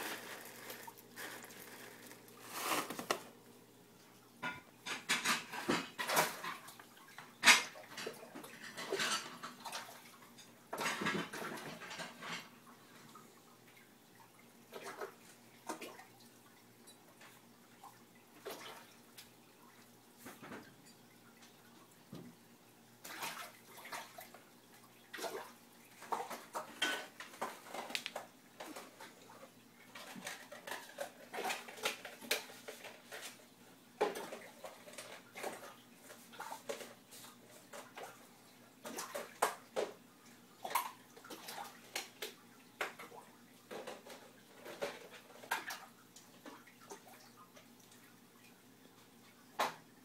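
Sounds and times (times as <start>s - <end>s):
water splashing and slapping: 0.0s - 3.5s, 17.7s - 20.7s, 23.0s - 33.4s, 40.6s - 48.1s
faint steady hum: 0.0s - 50.0s.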